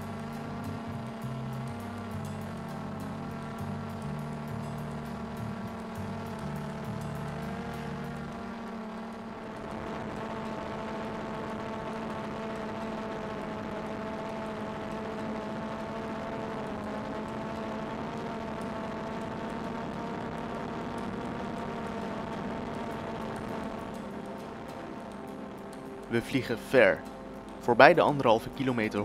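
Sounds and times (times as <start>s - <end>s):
drone propellers whining: 0.0s - 29.0s.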